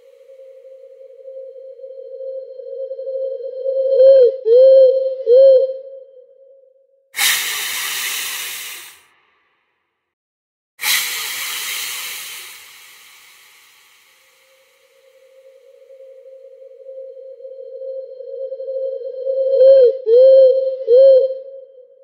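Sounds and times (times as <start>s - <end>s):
hissing: 7.2s - 9.1s, 10.8s - 15.5s.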